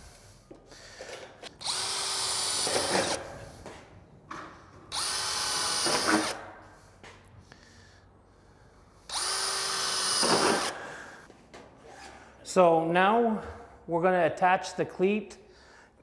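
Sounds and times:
cordless drill boring metal: 1.6 - 3.2, 4.9 - 6.4, 9.1 - 10.7.

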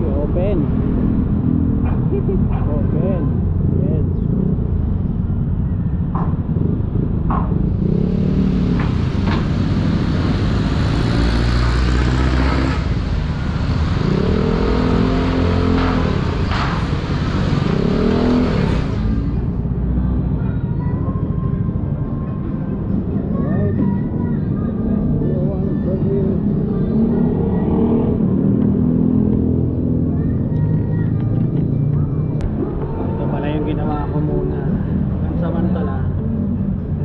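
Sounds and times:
wind and road noise: 0.0 - 37.0
scooter engine revving: 6.4 - 19.8.

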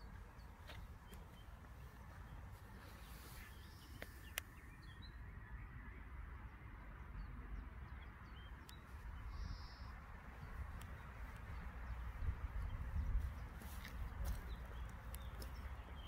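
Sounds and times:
small birds chirping: 0.0 - 5.6, 6.8 - 16.0
sharp clicks: 3.9 - 4.6
wind rumble on microphone: 9.0 - 16.0.

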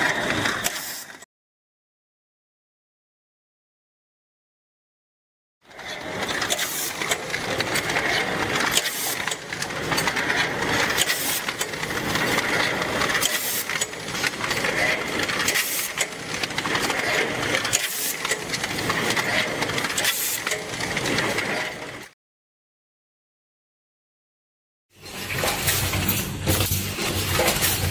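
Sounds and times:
packing machine clatter and hiss: 0.1 - 1.2, 6.4 - 22.1, 25.0 - 27.9
sharp machine clack: 6.1 - 22.1, 25.0 - 27.9.

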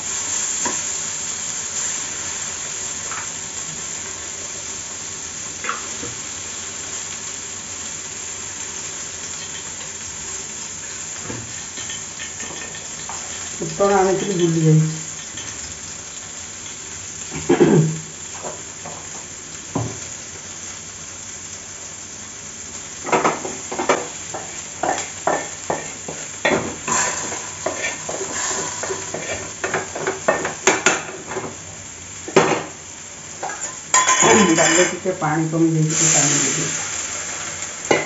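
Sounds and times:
frying sizzle: 0.0 - 38.0
metal spatula scraping iron pan: 26.8 - 30.5.

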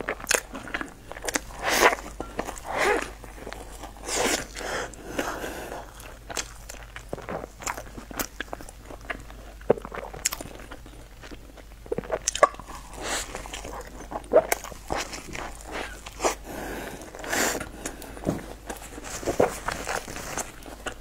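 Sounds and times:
chewing with mouth clicks: 0.0 - 16.4.

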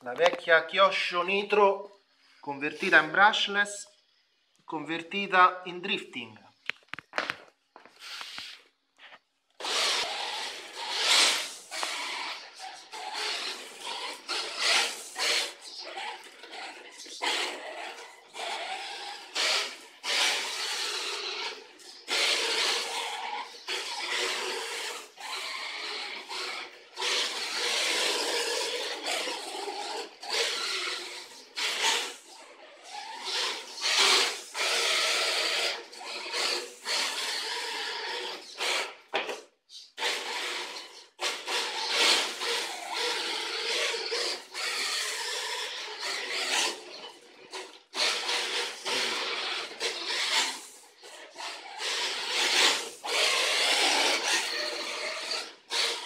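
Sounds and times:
tyres scrubbing on tiles: 7.7 - 20.6.

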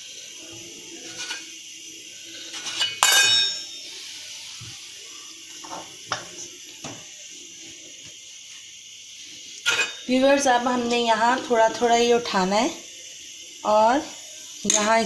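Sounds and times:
metallic clink with ring: 2.8 - 3.8, 9.7 - 10.1.

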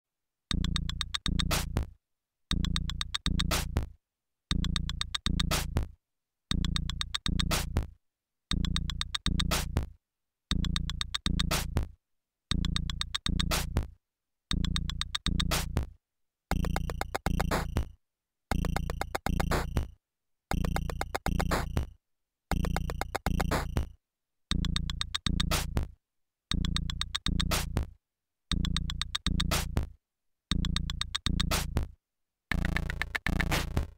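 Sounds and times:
synth and drum machine loop: 16.5 - 17.9, 18.5 - 19.9, 20.5 - 21.9, 22.5 - 23.9, 32.5 - 33.9.

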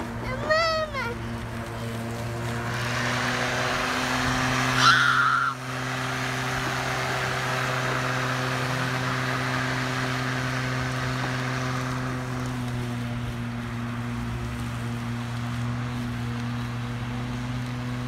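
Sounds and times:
street traffic noise: 0.0 - 18.0.

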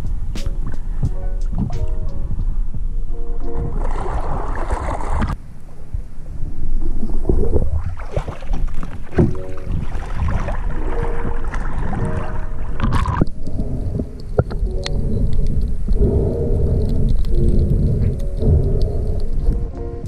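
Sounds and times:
wind on microphone: 0.0 - 20.0
water splashing and sloshing: 3.4 - 5.4, 6.4 - 19.8.

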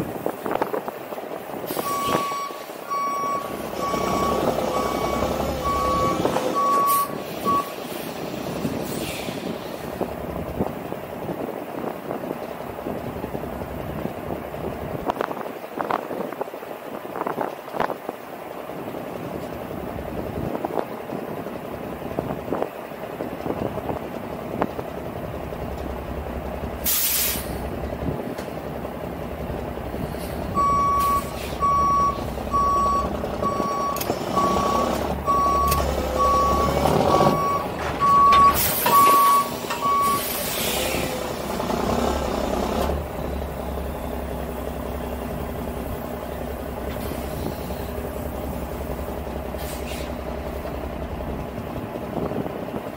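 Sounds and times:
diesel truck engine running: 0.0 - 52.9
backup alarm beeping: 1.8 - 7.7, 30.6 - 40.3
air brake hissing: 6.8 - 9.9, 26.8 - 27.7, 30.0 - 31.7, 38.5 - 41.2, 49.5 - 50.3.

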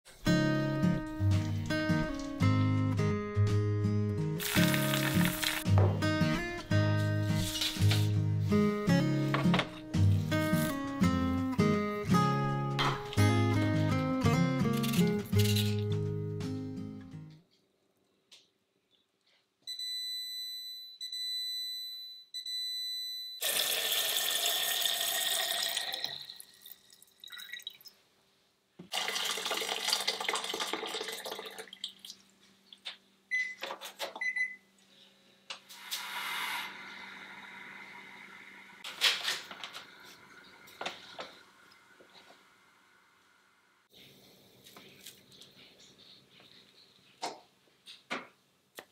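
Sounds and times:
water pouring into saucepan: 4.4 - 5.7, 23.4 - 27.9, 28.9 - 32.2
water running: 4.4 - 8.3, 23.4 - 28.0, 28.8 - 32.8, 35.8 - 43.7
rice cooker beeps: 19.7 - 23.6, 33.3 - 33.6, 34.2 - 34.7.

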